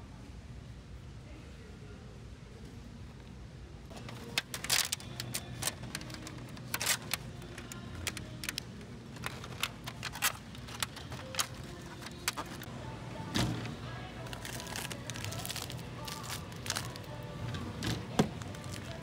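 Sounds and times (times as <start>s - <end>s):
low steady hum: 0.0s - 19.0s
hard plastic clicking and crackling: 3.9s - 12.7s, 14.2s - 19.0s.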